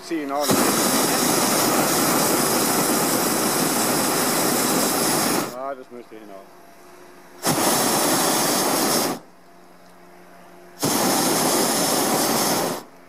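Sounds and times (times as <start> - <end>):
propane burner hissing: 0.0 - 6.2, 7.4 - 9.3, 10.7 - 13.0.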